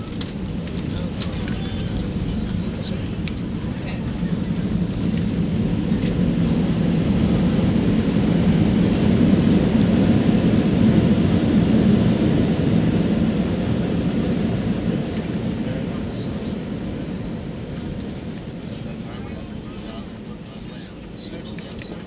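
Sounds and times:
jet engines roaring in cabin: 0:00.0 - 0:22.0.

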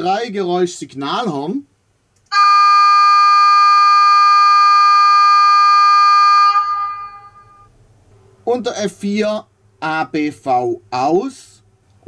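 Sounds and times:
model locomotive horn blast: 0:02.3 - 0:07.7.

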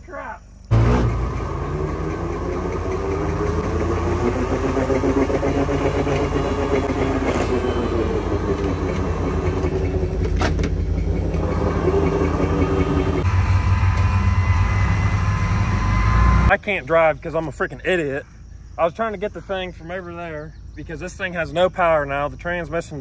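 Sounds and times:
car engine revving: 0:00.7 - 0:16.5.

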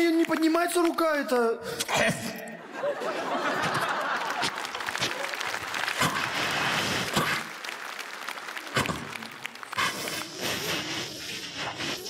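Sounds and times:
mouth-made hissing and crackling: 0:04.5 - 0:12.0.

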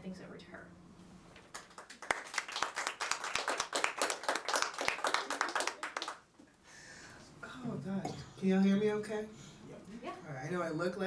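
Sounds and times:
audience applauding: 0:01.5 - 0:06.3.

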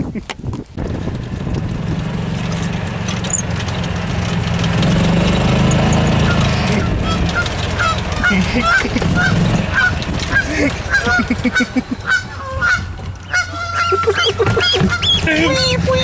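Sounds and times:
cart engine running low: 0:00.6 - 0:16.0
goose honking: 0:06.2 - 0:16.0.

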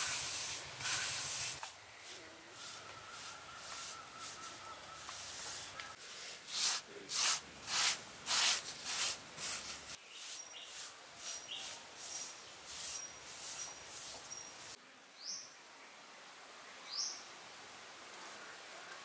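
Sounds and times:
hands rubbing wet cement: 0:00.0 - 0:14.4.

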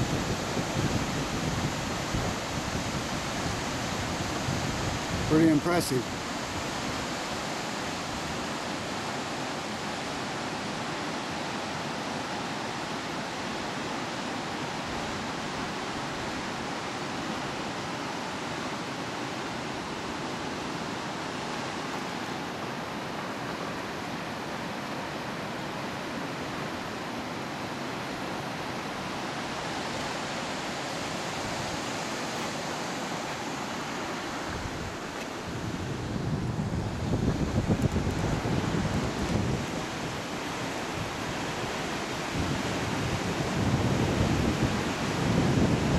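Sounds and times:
wind rumble on microphone: 0:00.0 - 0:07.1, 0:34.4 - 0:45.9
water roaring through dam: 0:00.0 - 0:45.9.

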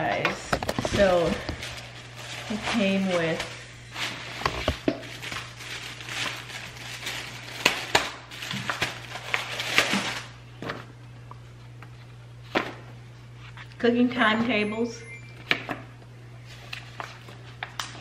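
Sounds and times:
steady low hum: 0:00.0 - 0:18.0
plastic packaging crinkling: 0:00.5 - 0:10.9
paper rustling: 0:00.8 - 0:10.9, 0:16.4 - 0:18.0.

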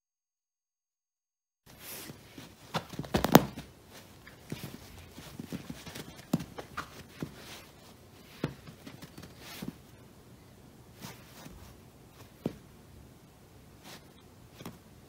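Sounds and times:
cat pouncing on cushion thumps: 0:02.4 - 0:03.8.

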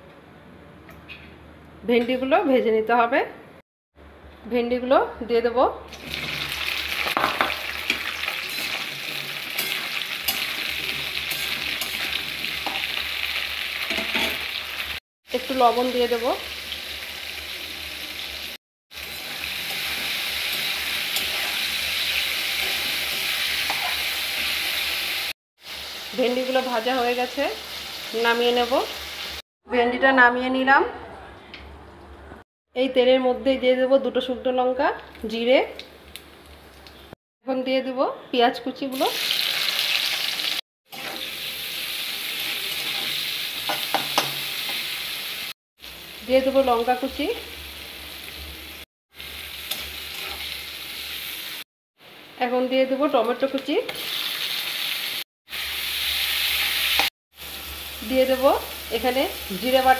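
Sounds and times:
okra sizzling in hot oil: 0:05.9 - 0:29.4, 0:38.9 - 0:51.7, 0:53.0 - 0:59.9.

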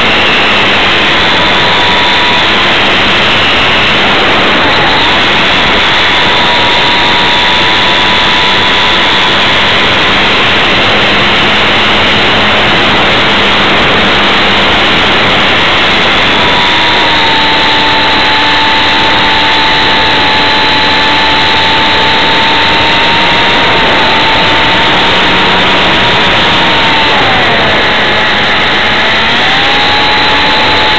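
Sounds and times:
model airplane motor and propeller: 0:00.0 - 0:30.9
wind noise: 0:00.0 - 0:30.9.

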